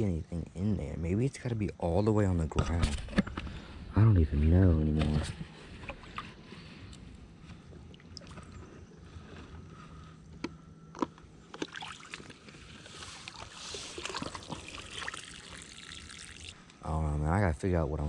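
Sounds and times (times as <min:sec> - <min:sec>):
shallow water sloshing: 0:05.5 - 0:10.0, 0:11.5 - 0:16.6.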